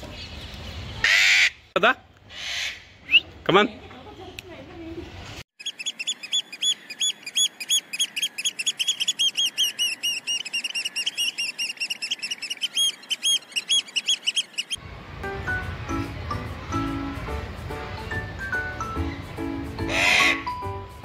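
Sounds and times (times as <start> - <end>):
small birds chirping: 5.6 - 14.8.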